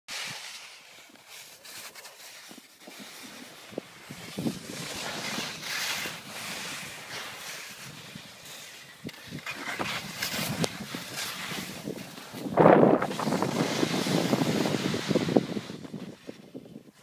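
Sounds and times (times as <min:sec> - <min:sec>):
skis scraping over snow: 0:00.1 - 0:17.0
wind buffeting microphone: 0:03.7 - 0:07.1, 0:07.8 - 0:17.0.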